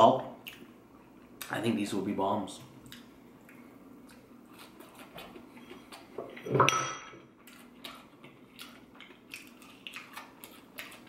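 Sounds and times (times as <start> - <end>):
ringing glass clink: 6.6 - 7.2.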